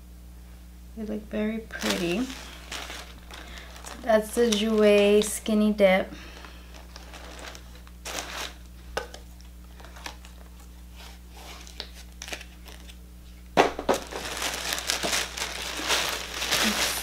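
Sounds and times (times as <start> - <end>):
packing paper crinkling: 1.7 - 13.0, 13.7 - 17.0
taps on small packaging: 13.6 - 15.3.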